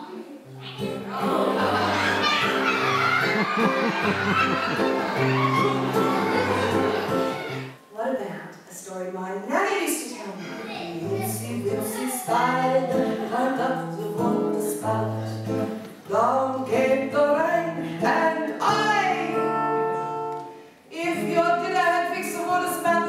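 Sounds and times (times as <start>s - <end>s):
acoustic guitar: 0.0s - 7.8s, 10.5s - 23.0s
woman singing: 11.0s - 20.2s, 20.9s - 23.0s.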